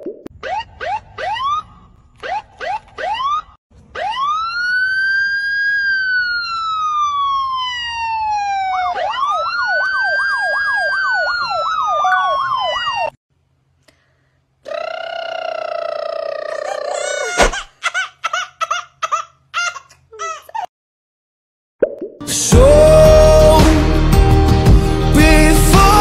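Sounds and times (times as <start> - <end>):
electronic siren: 0.3 - 13.2.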